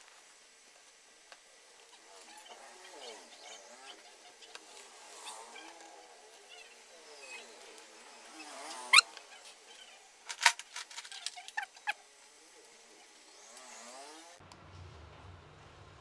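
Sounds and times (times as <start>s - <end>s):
short plastic squeaks: 8.4s - 12.0s.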